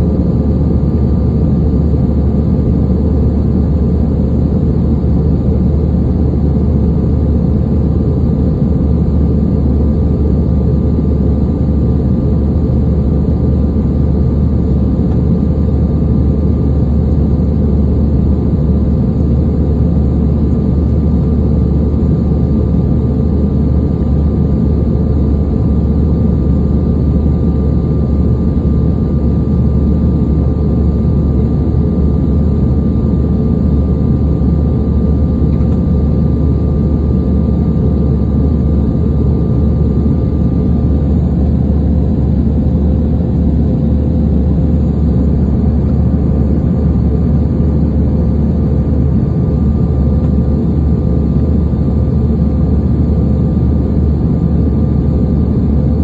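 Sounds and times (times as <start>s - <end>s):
airliner cabin rumble: 0.0s - 56.0s
thin steady whine: 0.0s - 56.0s.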